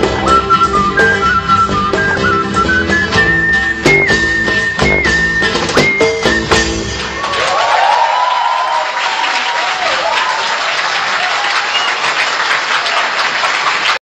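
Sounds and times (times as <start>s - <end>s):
whistles: 0.2s - 6.8s, 11.6s - 12.2s
crowd applauding: 6.8s - 14.0s.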